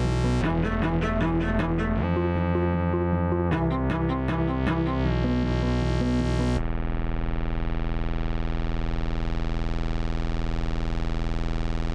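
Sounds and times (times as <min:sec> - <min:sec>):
held synth notes: 0:00.0 - 0:06.6
buzzing pulsing synth tone: 0:00.0 - 0:11.9.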